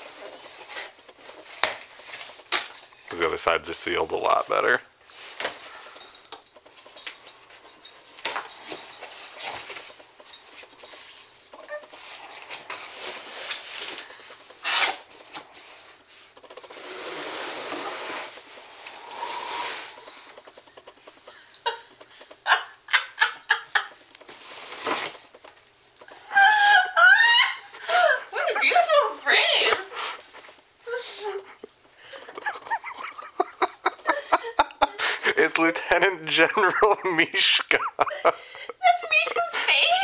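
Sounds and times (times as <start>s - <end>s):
cardboard scraping and rustling: 12.0s - 18.5s
blade cutting packing tape: 14.6s - 15.1s.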